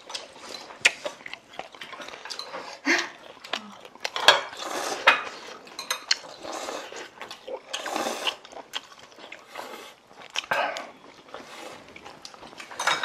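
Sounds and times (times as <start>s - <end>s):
eating noise: 0.0s - 12.8s
utensils clinking against dishes: 4.2s - 6.4s, 12.6s - 13.0s.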